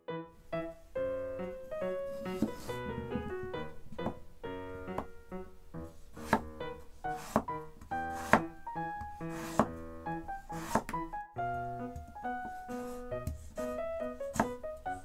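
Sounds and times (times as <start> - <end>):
piano music: 0.0 - 15.0
knife chopping on wooden board: 6.2 - 6.5, 7.2 - 8.5, 9.3 - 9.8, 10.5 - 11.0, 14.3 - 14.6.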